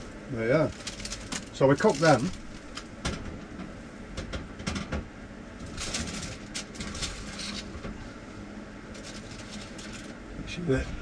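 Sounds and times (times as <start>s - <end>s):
low steady hum: 0.0s - 11.0s
baking paper rustling: 0.5s - 3.0s, 5.6s - 7.9s, 8.9s - 10.2s.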